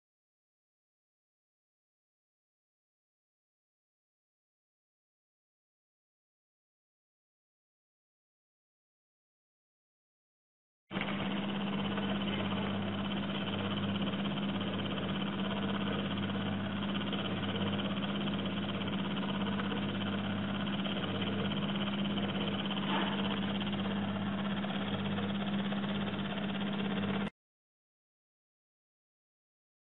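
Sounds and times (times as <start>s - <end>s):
electric motor humming: 10.9s - 27.3s.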